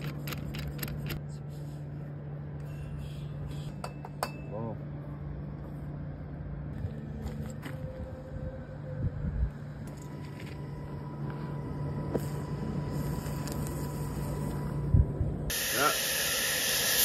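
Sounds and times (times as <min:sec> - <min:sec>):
low hum: 0:00.0 - 0:17.0
cutting torch hissing: 0:12.0 - 0:14.9, 0:15.5 - 0:17.0.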